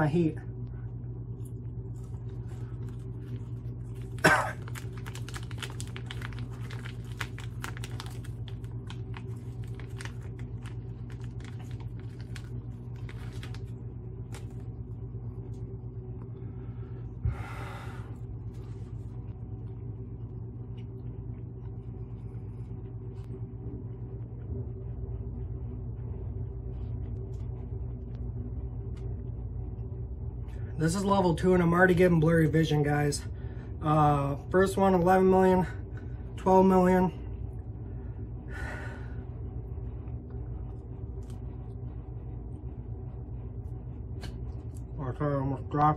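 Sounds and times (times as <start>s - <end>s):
furnace blower humming: 0.0s - 45.9s
plastic wrapper crinkling: 1.8s - 14.9s.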